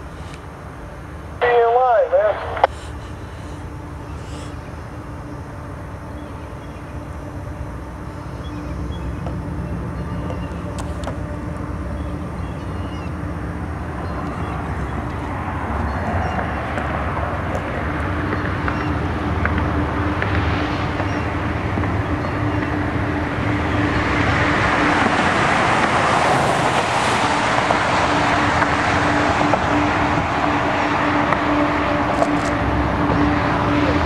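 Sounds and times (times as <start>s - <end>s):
freight train rumbling: 0.0s - 34.0s
rushing vehicle: 2.6s - 34.0s.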